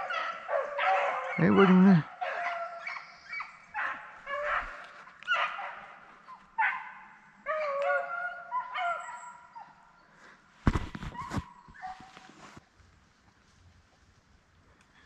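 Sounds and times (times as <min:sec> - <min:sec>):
dogs baying: 0:00.0 - 0:09.8.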